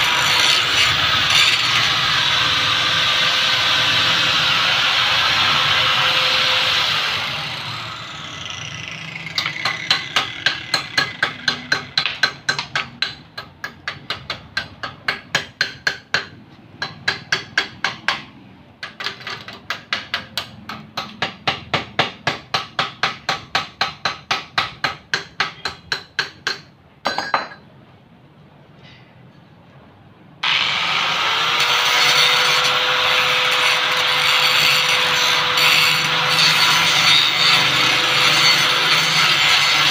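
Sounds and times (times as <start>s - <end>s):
angle grinder whining: 0.0s - 10.7s, 30.4s - 39.9s.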